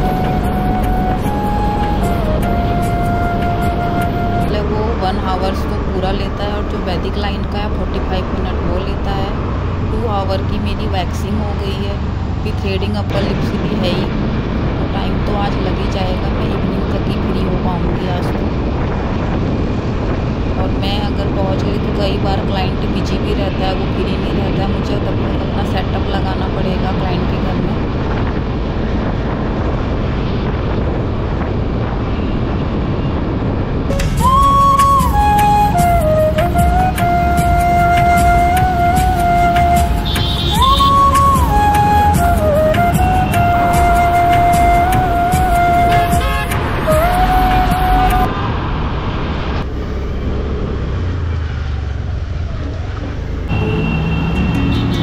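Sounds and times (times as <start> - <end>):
steady tones: 0.0 - 18.4, 33.9 - 48.3
wind rushing over microphone: 0.0 - 53.6
road noise: 0.0 - 55.0.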